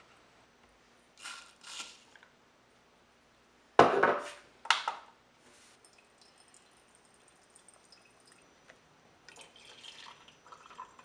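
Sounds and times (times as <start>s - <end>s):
kitchenware knocking on counter: 3.8s - 4.3s.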